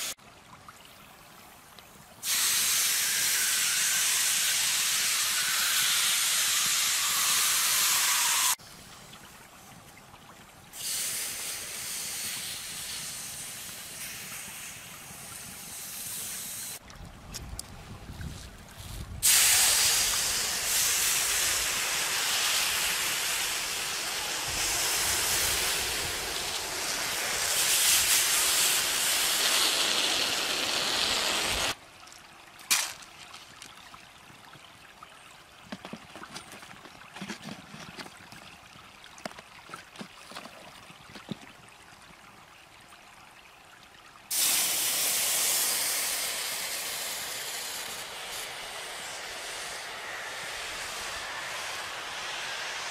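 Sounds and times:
hot rocks sizzling in water: 0:02.2 - 0:08.6, 0:19.2 - 0:31.8, 0:32.7 - 0:33.6, 0:44.3 - 0:52.9.

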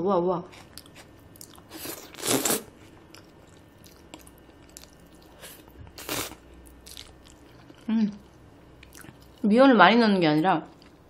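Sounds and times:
loud noodle slurps: 0:01.8 - 0:02.7.

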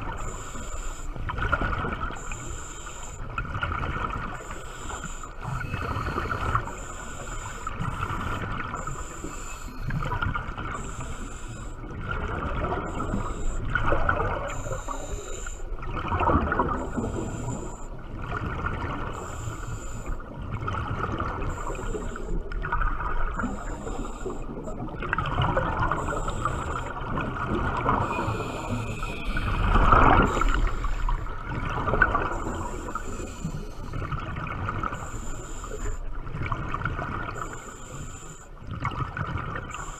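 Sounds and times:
faint high-pitched pulsing tone: 0:00.0 - 0:38.7, 0:39.4 - 0:39.9
muffled underwater water noise: 0:00.0 - 0:39.9.

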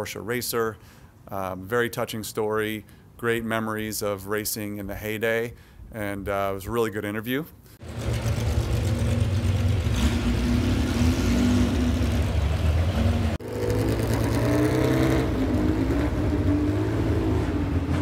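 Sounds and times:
race car engines running: 0:07.8 - 0:18.0.

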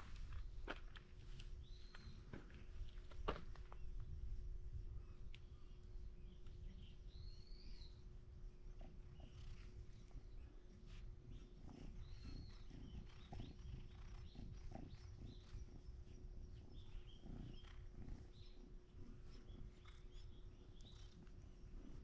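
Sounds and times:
faint hum: 0:00.0 - 0:22.0
faint bird chirps: 0:04.7 - 0:22.0
cat purring: 0:08.5 - 0:22.0.

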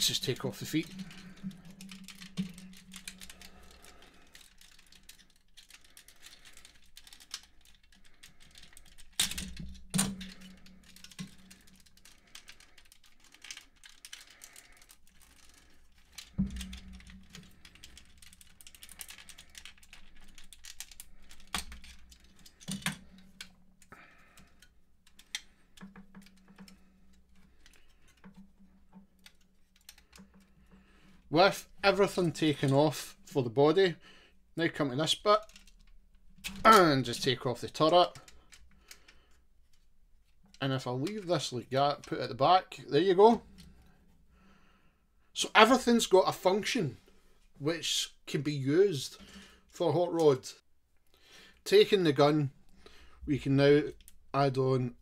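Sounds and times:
small plastic clicks and rattles: 0:00.0 - 0:32.8, 0:35.1 - 0:42.4, 0:53.8 - 0:54.6.

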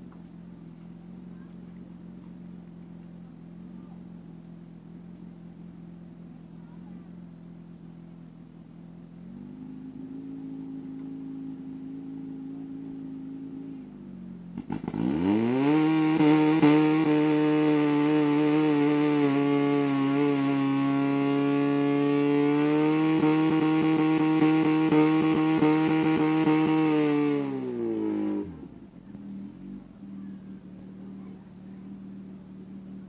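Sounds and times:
fire pump engine revving: 0:09.1 - 0:33.0.

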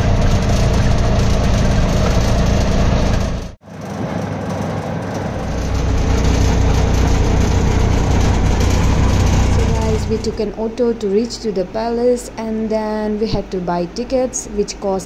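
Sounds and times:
auto-rickshaw engine running: 0:00.0 - 0:11.8
road noise: 0:00.0 - 0:12.6.

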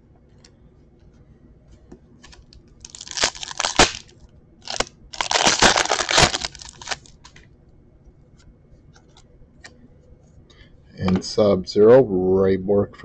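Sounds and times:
foil wrapper crinkling and tearing: 0:02.3 - 0:07.4.

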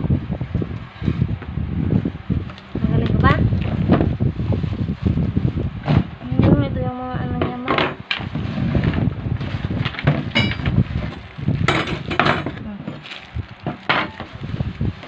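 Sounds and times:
plastic and bubble wrap crinkling: 0:02.4 - 0:15.0
cardboard scraping: 0:08.2 - 0:15.0.

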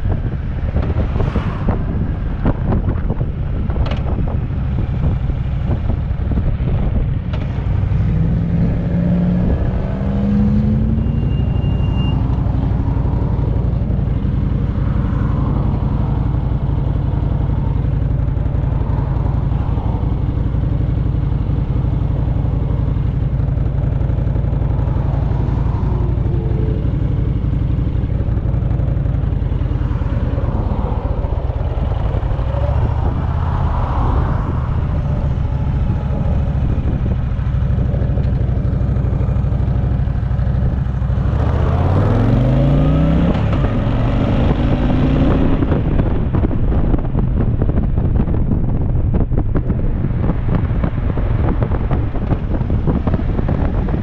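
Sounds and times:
motorcycle engine running: 0:12.3 - 0:54.0.

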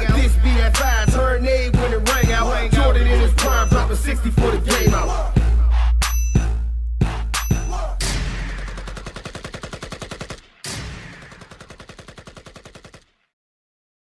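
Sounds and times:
automatic gunfire bursts: 0:08.9 - 0:10.4, 0:11.2 - 0:13.0.

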